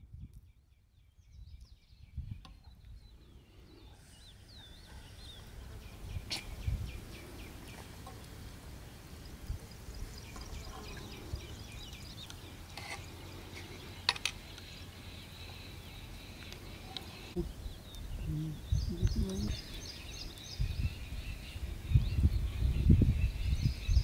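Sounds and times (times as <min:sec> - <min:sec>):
small birds chirping: 0:00.0 - 0:24.0.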